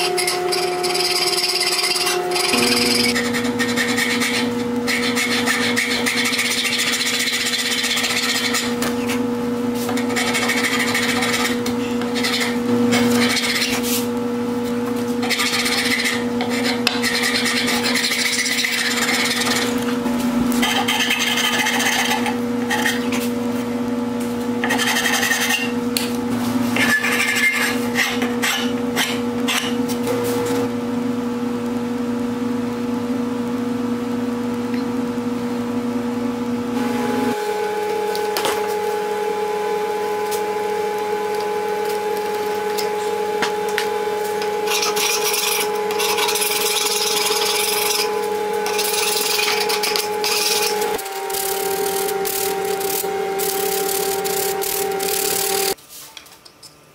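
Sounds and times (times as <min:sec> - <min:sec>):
hand file rasping on wood: 0:00.0 - 0:08.8, 0:09.9 - 0:13.8, 0:15.2 - 0:19.8, 0:20.6 - 0:23.1, 0:24.7 - 0:25.6.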